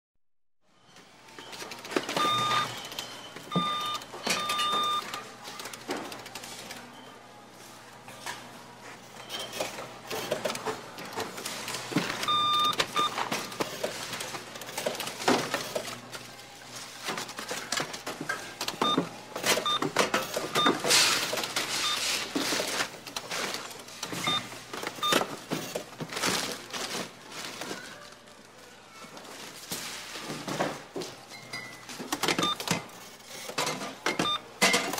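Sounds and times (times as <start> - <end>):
checkout register beeps: 0.8 - 7.3, 9.1 - 14.0, 18.4 - 22.9, 24.0 - 25.5, 31.4 - 33.0, 33.7 - 34.9
clatter and rustle of goods: 0.8 - 34.9.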